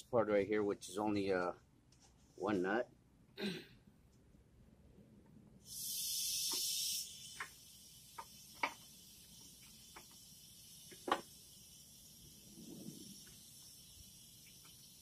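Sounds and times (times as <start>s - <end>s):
high hiss: 5.6s - 15.0s.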